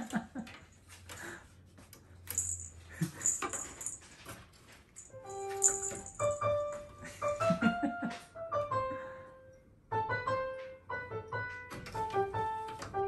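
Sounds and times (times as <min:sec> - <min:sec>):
piano melody: 0:05.0 - 0:13.0.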